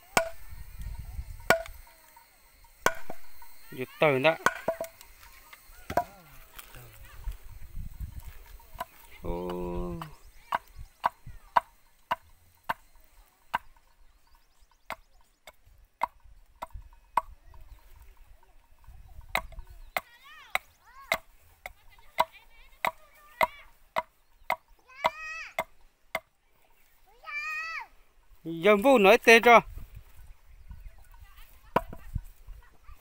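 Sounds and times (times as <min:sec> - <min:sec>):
axe striking wood: 0:00.1 - 0:00.4, 0:01.5 - 0:01.8, 0:02.8 - 0:03.2, 0:04.4 - 0:05.0.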